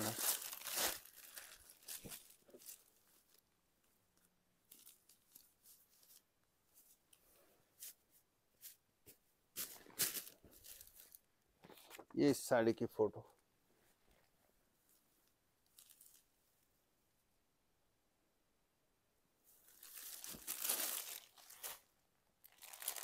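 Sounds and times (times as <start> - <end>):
fabric crinkling and rustling: 0.0 - 7.2, 9.6 - 12.0, 14.0 - 16.4, 19.6 - 23.0.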